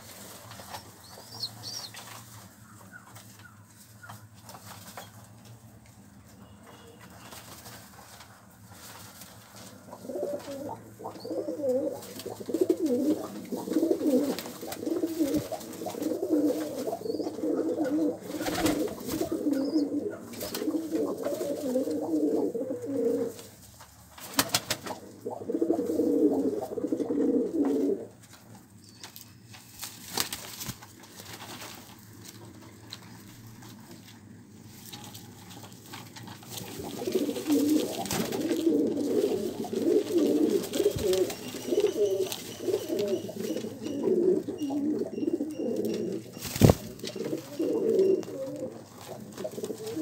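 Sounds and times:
pigeons cooing: 9.9 - 23.5, 24.8 - 28.2, 36.5 - 50.0.

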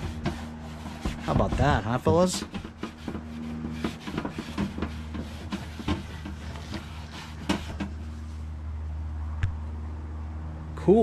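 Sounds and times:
rag wiping plastic hood: 0.0 - 8.5
steady low hum: 0.0 - 10.8.

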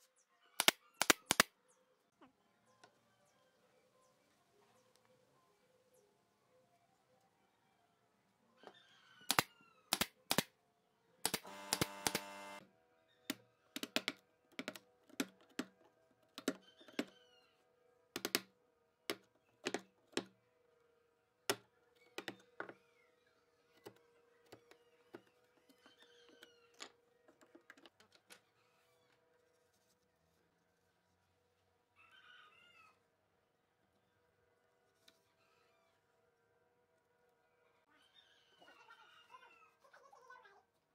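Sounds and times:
machine whir: 11.3 - 12.6.

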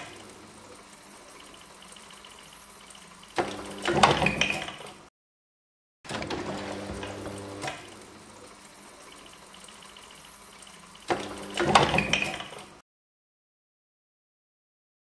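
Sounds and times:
mechanism humming: 6.5 - 8.8.

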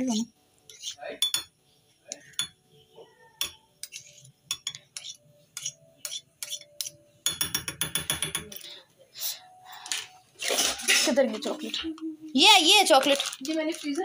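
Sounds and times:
metal spoons clinking on ceramic bowl: 0.7 - 2.6, 3.4 - 8.7.

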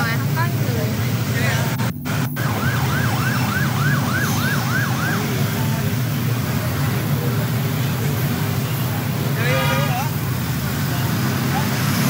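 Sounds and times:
low rumble of vehicle engines: 0.0 - 12.0
siren yelping: 2.0 - 5.9.

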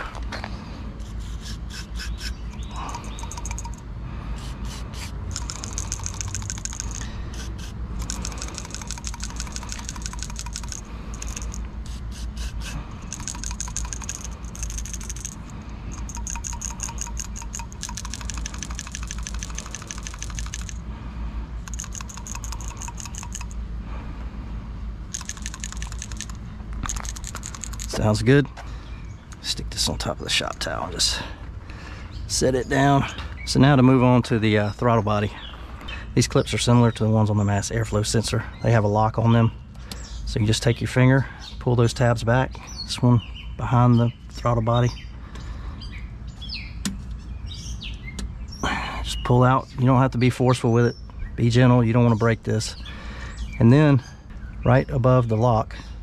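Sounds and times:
aerosol spray hissing: 1.0 - 2.4, 4.4 - 5.8, 7.3 - 7.8, 11.8 - 12.8
valve rattling when shaken: 1.0 - 3.8, 4.4 - 20.8, 21.6 - 23.6, 25.1 - 28.1.

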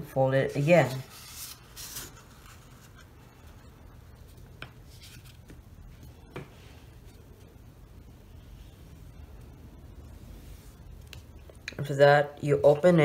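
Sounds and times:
paper brushing: 0.5 - 3.1
paper rustling: 0.5 - 3.6, 4.2 - 6.1.

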